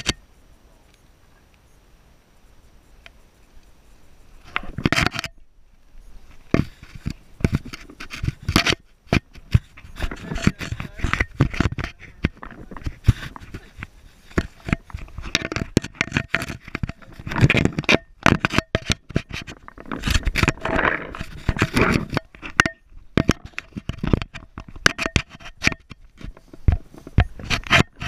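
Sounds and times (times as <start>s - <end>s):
camera rubbing and knocking: 0.0s - 0.2s, 4.4s - 5.4s, 6.2s - 28.0s
rustling: 2.4s - 28.0s
footsteps on gravel and grass: 5.8s - 15.8s, 26.2s - 28.0s.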